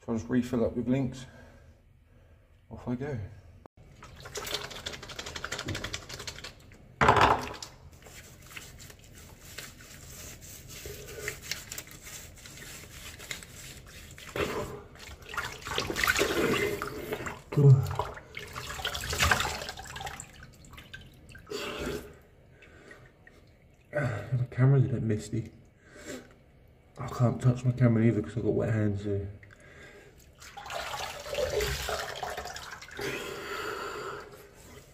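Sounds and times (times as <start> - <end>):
water splashing in a washbasin: 3.8 - 24.5, 29.2 - 33.5.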